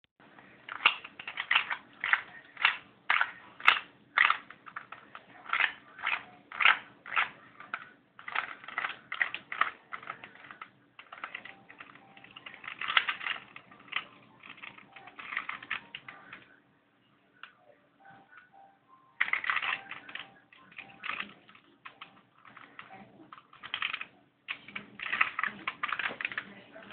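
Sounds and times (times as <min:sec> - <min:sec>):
plastic puzzle layers clacking: 0:00.6 - 0:16.6, 0:19.2 - 0:26.9.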